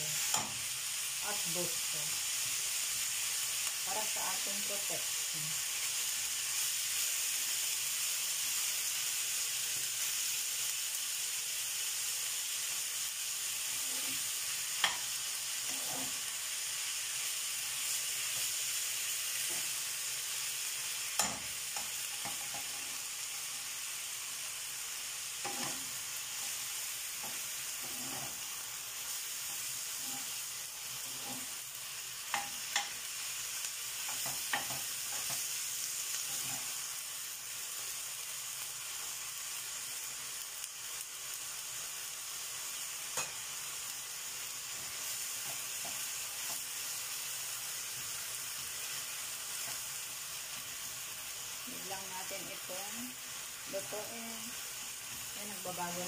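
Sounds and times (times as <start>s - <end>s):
meat sizzling in frying pan: 0.0s - 56.0s
utensils knocking on pan: 21.2s - 22.8s, 32.3s - 33.0s, 34.1s - 35.4s.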